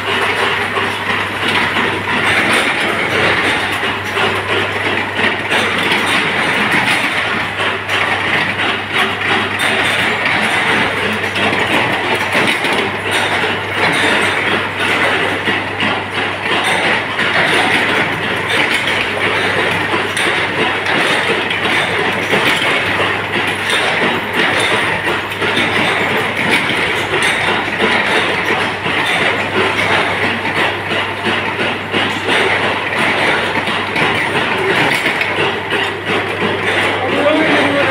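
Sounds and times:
continuous fine rattle: 0.0 - 37.9
machinery hum: 0.0 - 37.9.

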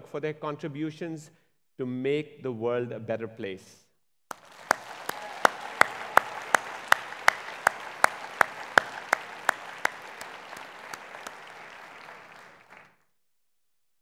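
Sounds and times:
audience applauding: 4.3 - 13.0
close hand claps: 4.3 - 13.0.

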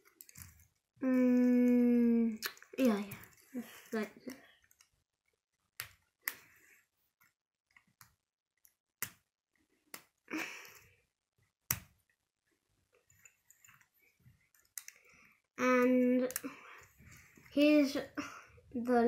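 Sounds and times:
plastic parts handling noise: 0.0 - 1.4
plastic parts clicking together: 0.0 - 1.8.

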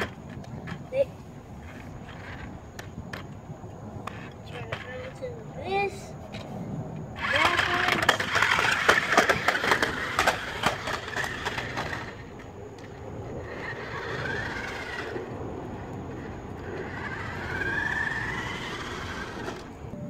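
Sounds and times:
toy car clattering down concrete steps: 0.0 - 3.3, 7.2 - 19.8
small electric motor whine: 7.2 - 20.0.

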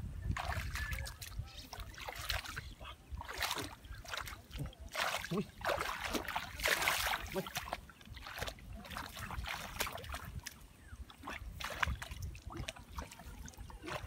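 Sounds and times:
shallow water splashing: 0.3 - 14.0.

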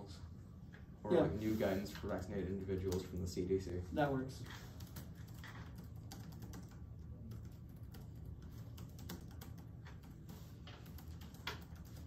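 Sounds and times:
low steady hum: 0.0 - 12.0
typing on laptop keyboards: 4.6 - 12.0.

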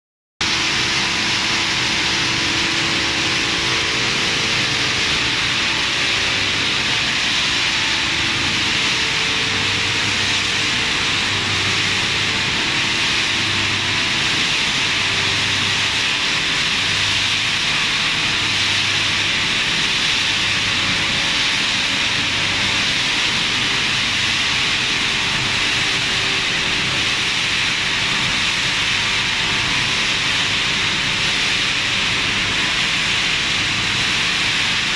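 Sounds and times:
machinery hissing: 0.4 - 34.9.

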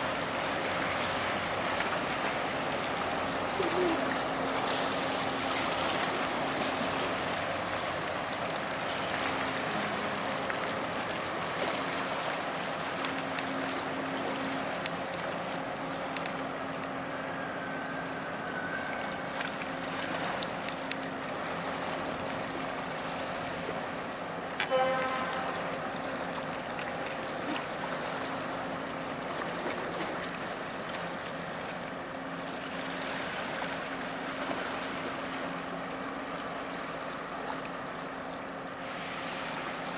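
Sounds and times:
moving water: 0.0 - 39.9
ship engine drone: 0.0 - 39.9
ship horn toot: 9.5 - 11.0, 17.2 - 19.4, 24.6 - 26.5.

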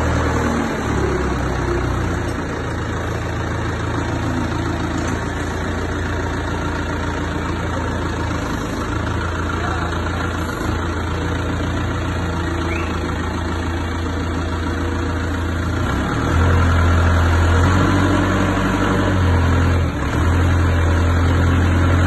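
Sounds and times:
forklift engine idling and revving: 0.0 - 22.0.

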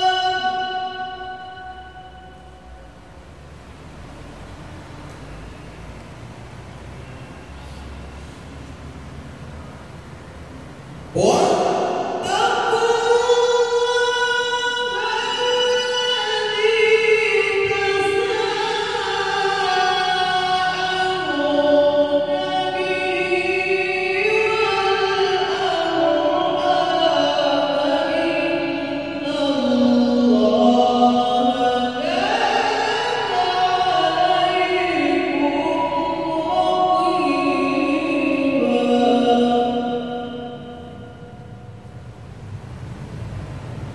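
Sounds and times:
man reciting melodically: 0.0 - 2.9, 11.1 - 41.6.

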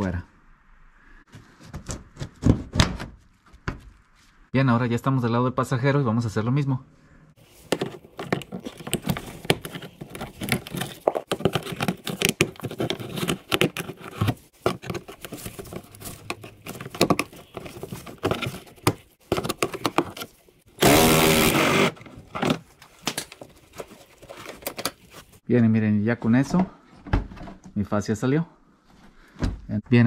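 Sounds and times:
loud harsh plastic creak: 20.7 - 22.6.

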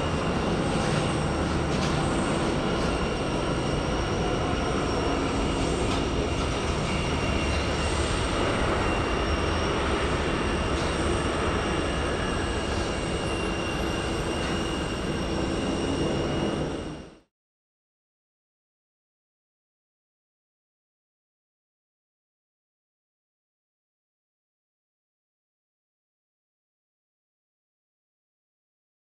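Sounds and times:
jet engines rumbling and whining: 0.0 - 17.3.

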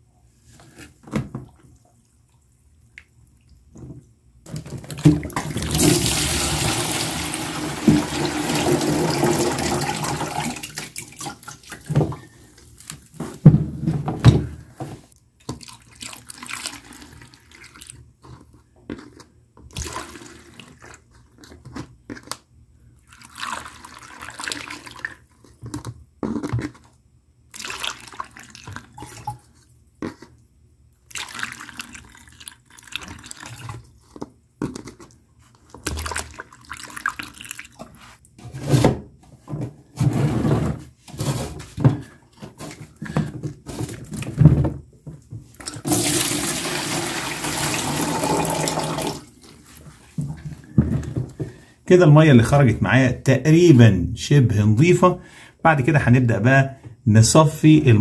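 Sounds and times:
water pouring into plastic tub: 4.5 - 12.2, 15.5 - 18.0, 19.7 - 21.0, 23.0 - 25.3, 27.5 - 29.5, 31.0 - 33.9, 35.8 - 38.2, 45.6 - 49.8
water splashing through funnel: 4.5 - 12.2, 19.7 - 21.0, 27.5 - 29.5, 31.0 - 33.9, 45.6 - 49.8
water splashing and gurgling: 27.5 - 29.4, 31.1 - 33.8, 35.8 - 38.0.

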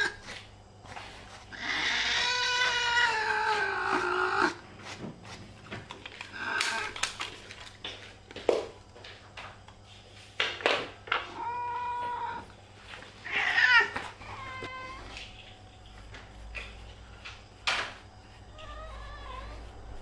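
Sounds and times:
cat meowing: 1.5 - 4.5, 11.3 - 12.5.

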